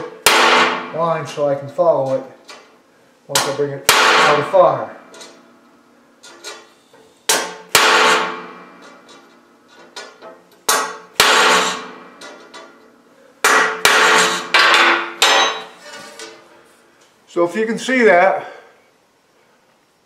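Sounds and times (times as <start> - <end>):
hammer striking chisel on metal: 3.4 - 4.4, 7.3 - 8.3, 10.0 - 12.5, 13.4 - 15.8.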